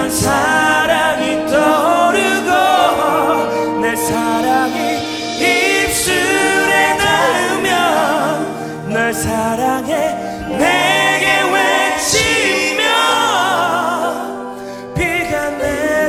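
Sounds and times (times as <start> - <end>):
instrumental accompaniment: 0.0 - 16.0.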